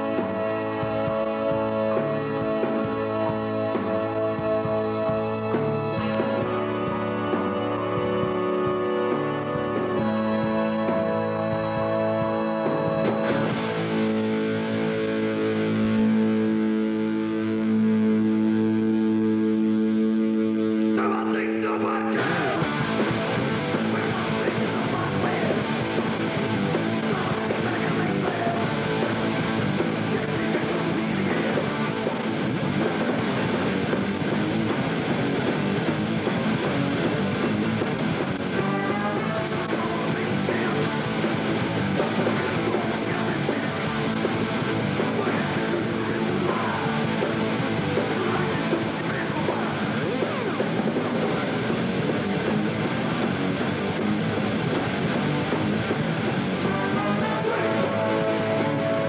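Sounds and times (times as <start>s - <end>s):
distorted electric guitar: 0.0s - 59.0s
drums: 0.0s - 59.0s
punk rock music: 0.0s - 59.0s.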